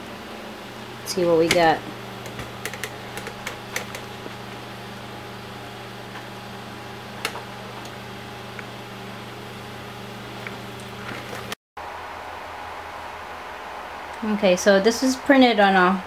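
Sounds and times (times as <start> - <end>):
printer fans humming: 0.0 - 11.6.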